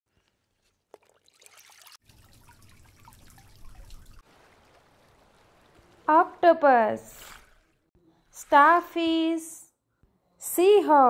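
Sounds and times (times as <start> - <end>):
faint trickling water: 0.1 - 9.5
bubbly pops and drips: 0.9 - 5.9.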